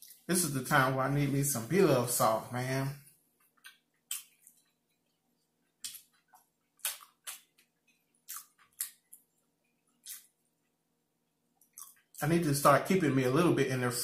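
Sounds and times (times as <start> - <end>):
wet chewing mouth sounds: 3.4 - 10.4, 11.6 - 12.2.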